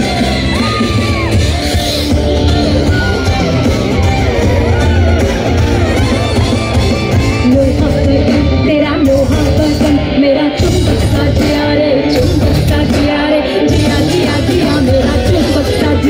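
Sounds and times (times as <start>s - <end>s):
live band with heavy bass: 0.0s - 16.0s
person singing: 7.2s - 16.0s.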